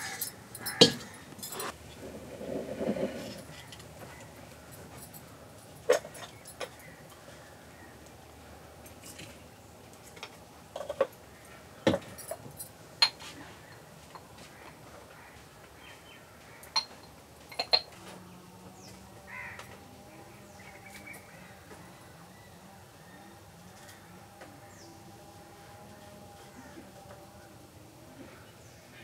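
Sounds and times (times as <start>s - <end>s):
ceramic jars clinking: 11.9s - 14.3s, 16.7s - 18.0s.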